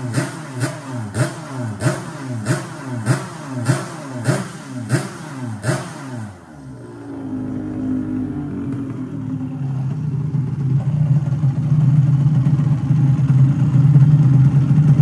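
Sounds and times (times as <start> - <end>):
motorcycle engine revving: 0.0 - 15.0
motorcycle engine idling: 6.3 - 15.0.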